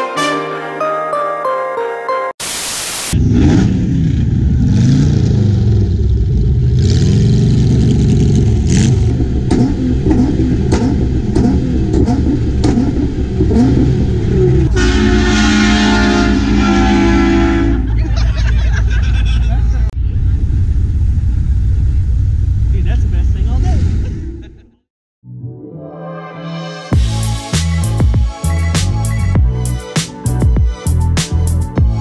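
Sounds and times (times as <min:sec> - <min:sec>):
tv static: 0:02.4 - 0:03.1
sports car engine revving: 0:03.2 - 0:15.1.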